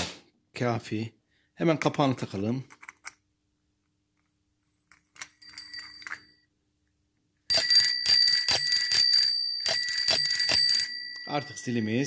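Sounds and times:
bicycle bell ringing: 0:05.4 - 0:06.4, 0:07.5 - 0:12.0.

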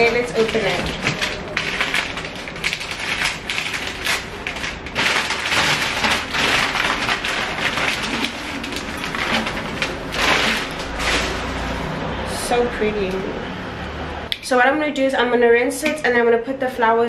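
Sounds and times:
wrapping crackling and rustling: 0:00.0 - 0:12.0.

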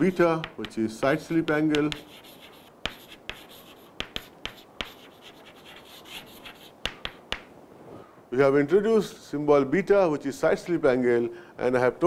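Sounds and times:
chalk writing on chalkboard: 0:00.1 - 0:07.5.

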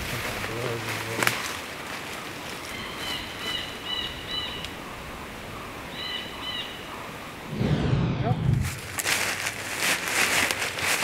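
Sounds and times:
footsteps in dry leaves: 0:08.6 - 0:11.0.

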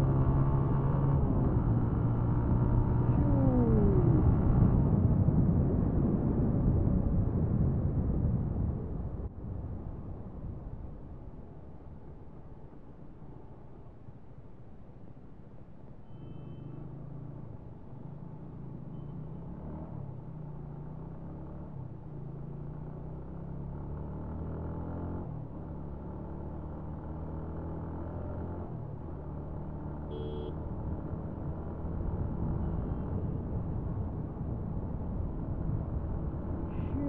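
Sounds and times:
motorcycle engine accelerating: 0:00.0 - 0:05.4
wind and road noise: 0:00.0 - 0:37.0
motorcycle horn beep: 0:30.1 - 0:30.6.

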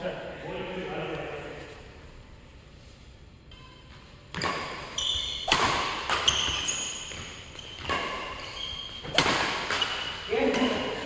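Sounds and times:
shoes squeaking on court: 0:03.5 - 0:11.0
racket hitting shuttlecock: 0:04.3 - 0:11.0.

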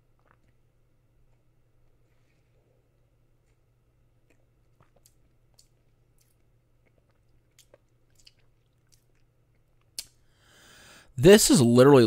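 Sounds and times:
low steady hum: 0:00.0 - 0:12.0
lip smacks and tongue clicks: 0:04.2 - 0:10.2.

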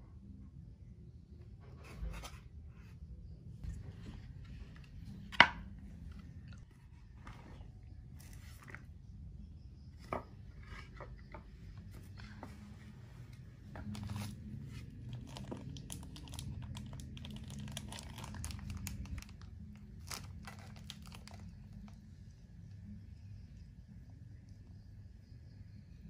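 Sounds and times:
low room hum: 0:00.0 - 0:26.0
plastic crinkling and rustling: 0:13.7 - 0:22.0.

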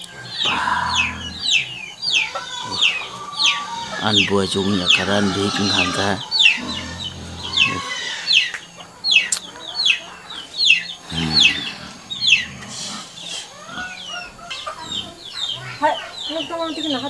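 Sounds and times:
chickens chirping: 0:00.0 - 0:17.0.

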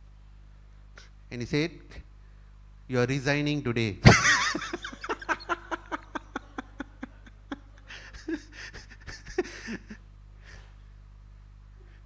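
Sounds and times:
laughter: 0:04.0 - 0:10.0.

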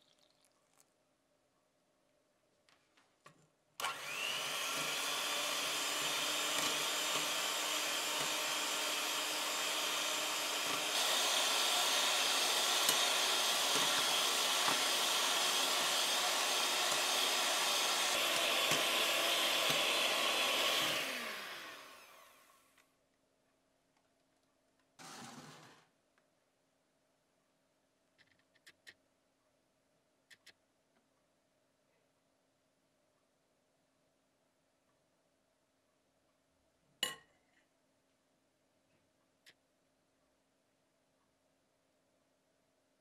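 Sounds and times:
electric hand mixer whipping: 0:03.8 - 0:22.5.

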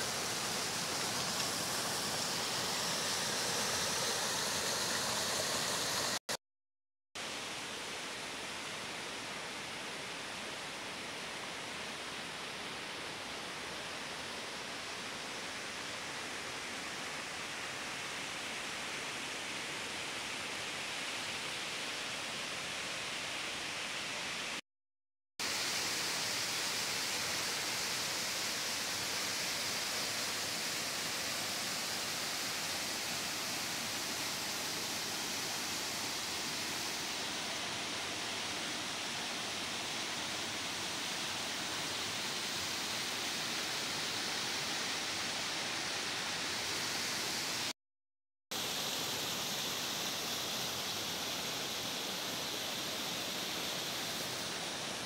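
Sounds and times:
river water rushing: 0:00.0 - 0:06.2, 0:25.4 - 0:47.7, 0:48.6 - 0:55.0.

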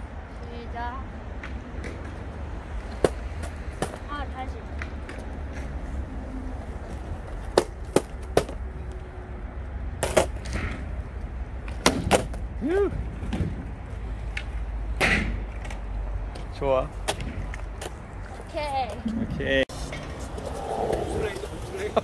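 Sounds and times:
skateboard clacking on pavement: 0:02.8 - 0:05.7, 0:06.9 - 0:08.7, 0:10.0 - 0:10.8, 0:11.6 - 0:12.4
person exclaiming: 0:12.6 - 0:13.0.

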